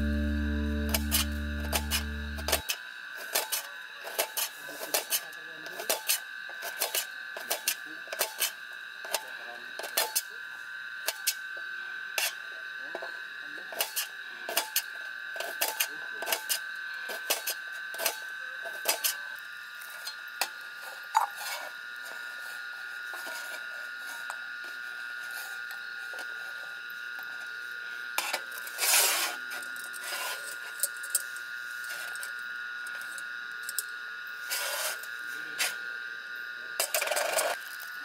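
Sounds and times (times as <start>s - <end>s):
steady high-pitched tone: 0.0s - 2.6s.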